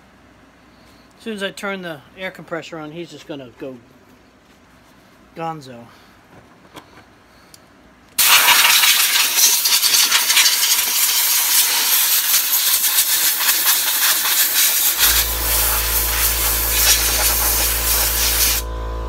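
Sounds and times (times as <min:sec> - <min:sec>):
air blow gun hissing: 0:08.2 - 0:18.7
low steady hum: 0:15.0 - 0:19.0.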